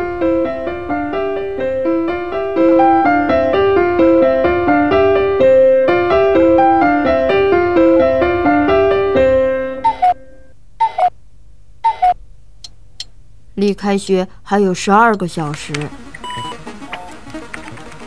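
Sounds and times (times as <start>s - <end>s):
keyboard playing short notes: 0.0s - 11.1s, 15.7s - 18.0s.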